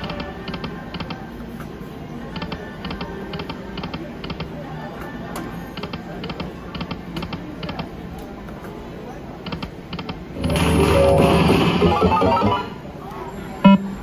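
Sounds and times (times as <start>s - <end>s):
people chattering: 0.0s - 14.0s
slot machine reels clicking: 10.4s - 12.8s
background music: 10.4s - 12.9s.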